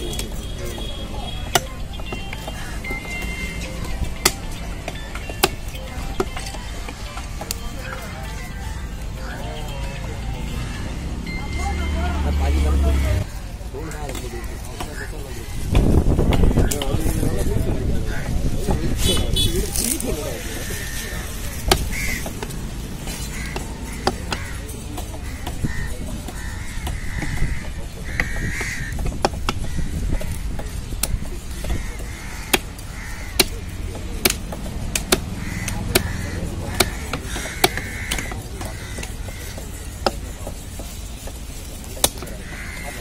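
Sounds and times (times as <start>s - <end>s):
market hubbub: 0.0s - 43.0s
knife chopping fish on wood: 21.6s - 22.5s, 23.5s - 41.4s, 42.0s - 42.6s.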